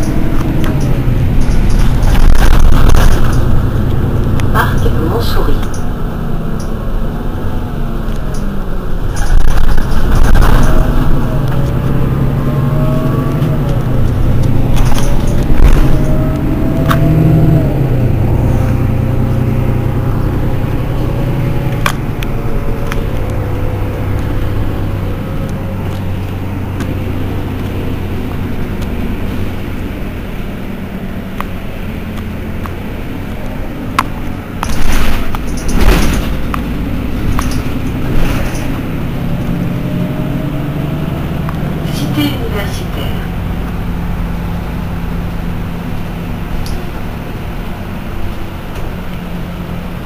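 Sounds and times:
sharp clicks or knocks: 0.0s - 4.5s, 33.9s - 38.8s
bus diesel engine whining: 0.0s - 50.0s.

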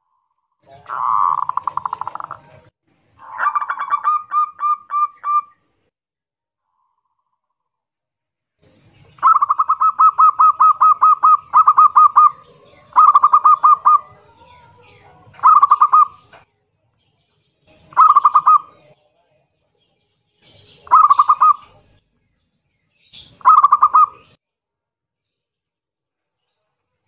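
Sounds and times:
zebra dove cooing: 0.7s - 2.6s, 3.2s - 5.5s, 9.2s - 14.1s, 15.4s - 16.3s, 17.9s - 18.8s, 20.8s - 21.8s, 23.4s - 24.2s.

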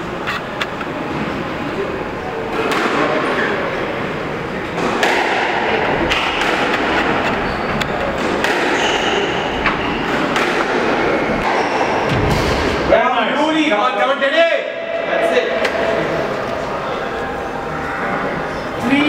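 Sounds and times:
background noise: 0.0s - 19.0s
squash ball hitting rackets and walls: 2.5s - 3.5s, 4.6s - 13.0s.

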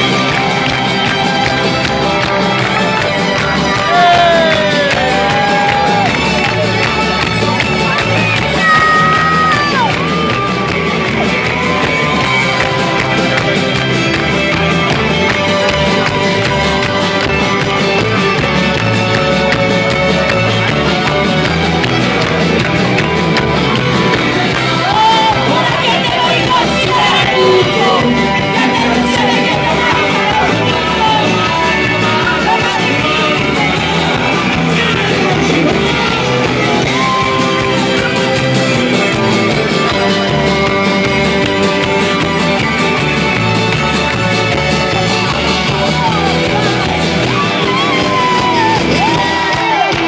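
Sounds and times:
crowd clapping along: 0.0s - 50.0s
live rock band playing: 0.0s - 50.0s
person singing: 2.8s - 9.9s, 24.2s - 38.6s.

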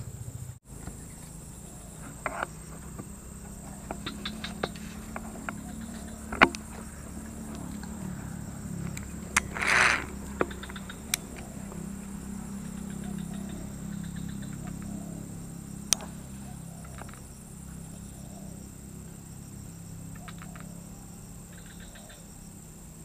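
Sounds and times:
steady low hum: 0.0s - 23.0s
sharp clicks and knocks: 2.0s - 8.1s, 8.8s - 11.9s
short rustling burst: 8.8s - 10.6s.

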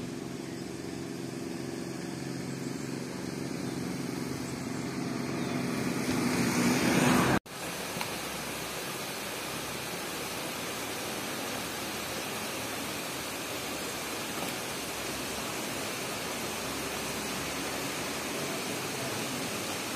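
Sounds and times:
river water rushing: 5.8s - 19.9s.

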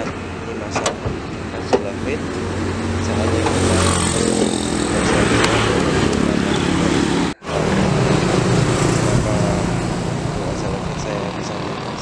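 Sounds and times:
road and rushing noise: 0.0s - 12.0s
truck engine running: 0.0s - 12.0s.

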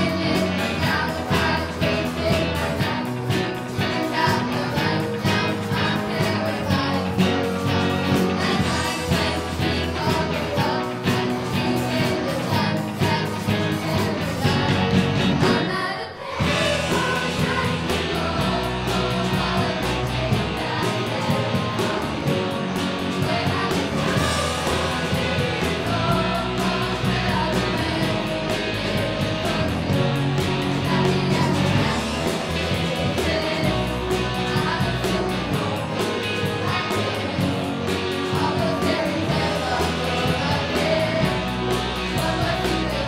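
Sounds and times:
live rock band playing: 0.0s - 43.0s
singers and choir singing: 0.0s - 43.0s.

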